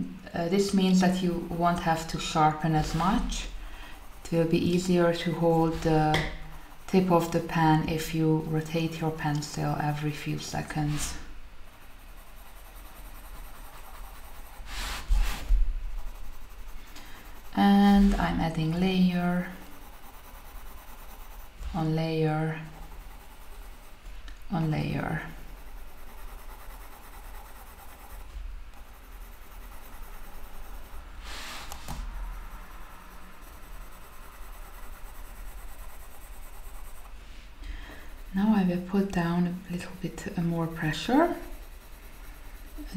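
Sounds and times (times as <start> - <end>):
pencil scratching on paper: 0.4 - 42.9.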